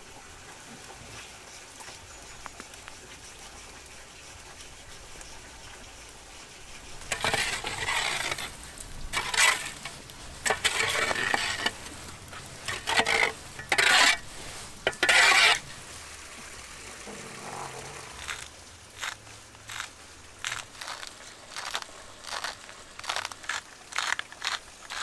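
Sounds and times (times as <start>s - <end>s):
embers scraped across brick: 3.1s - 16.0s, 17.5s - 25.0s
coals clinking: 6.9s - 16.0s.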